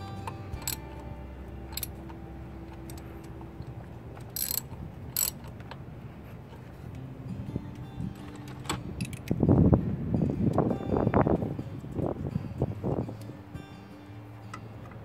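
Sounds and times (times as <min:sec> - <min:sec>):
steady low hum: 0:00.0 - 0:15.0
socket wrench clicking on metal: 0:00.6 - 0:01.0, 0:01.7 - 0:03.1, 0:04.2 - 0:05.8, 0:08.4 - 0:09.4.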